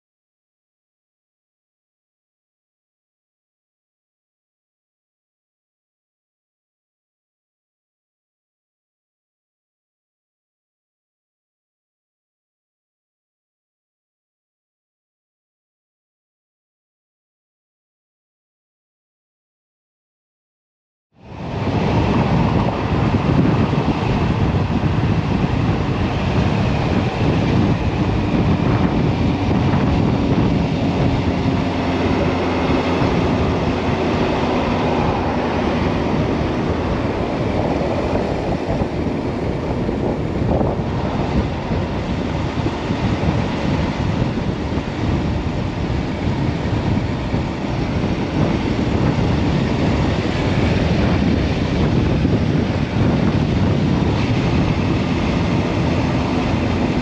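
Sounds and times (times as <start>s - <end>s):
wind noise on microphone: 21.2s - 57.0s
motorcycle engine cruising: 21.4s - 57.0s.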